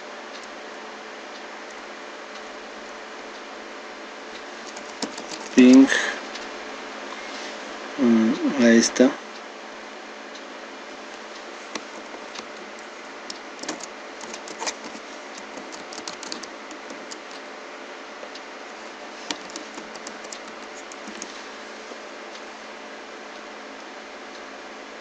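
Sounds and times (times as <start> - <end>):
keyboard typing clicks: 4.6 - 6.5, 11.7 - 17.4, 19.2 - 21.4.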